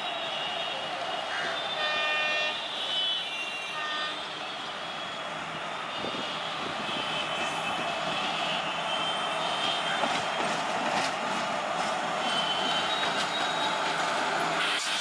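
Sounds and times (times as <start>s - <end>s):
locomotive horn: 1.2s - 5.1s, 5.9s - 10.4s.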